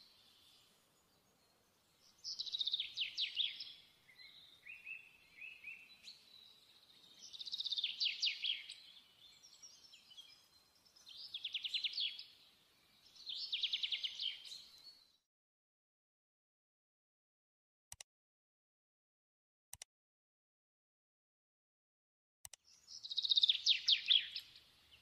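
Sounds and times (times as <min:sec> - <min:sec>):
songbird singing: 0:00.0 - 0:15.2, 0:22.6 - 0:25.0.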